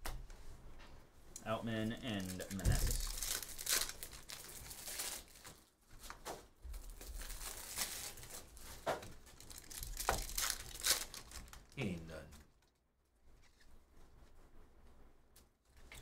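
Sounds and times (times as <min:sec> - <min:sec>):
foil wrapper tearing and crinkling: 0:02.0 - 0:06.2, 0:06.8 - 0:11.8
cards being handled: 0:02.0 - 0:11.4.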